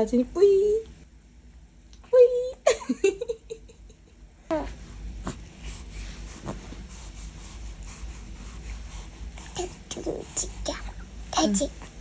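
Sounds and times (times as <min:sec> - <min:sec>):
baby breathing: 0:04.6 - 0:11.0.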